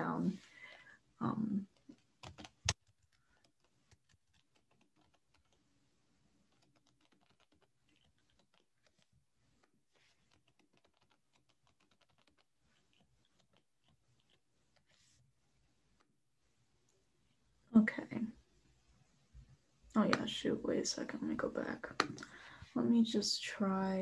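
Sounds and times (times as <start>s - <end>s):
keyboard keys tapping: 2.2s - 5.6s.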